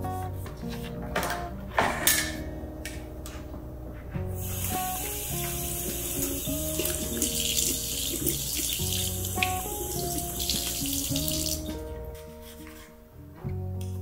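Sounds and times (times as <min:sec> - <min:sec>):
faucet water splashing into container: 0:04.4 - 0:11.8.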